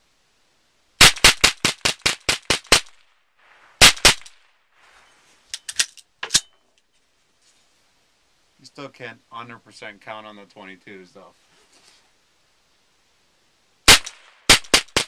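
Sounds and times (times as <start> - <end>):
rifle shots: 1.0 - 4.5, 13.9 - 15.0
rifle action clicks and clack: 5.5 - 6.5.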